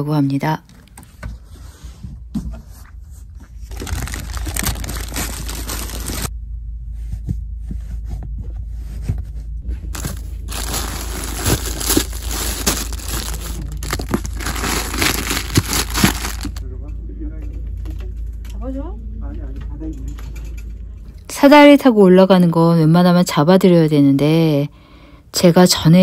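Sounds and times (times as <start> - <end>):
plastic wrapping crinkling: 3.6 - 6.3, 9.9 - 16.6.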